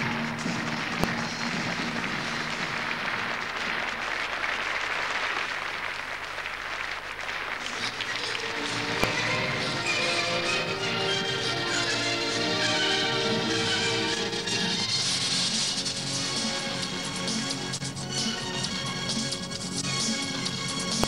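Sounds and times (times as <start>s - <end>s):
music: 0.0s - 4.3s, 7.7s - 21.0s
audience applauding: 0.0s - 10.5s.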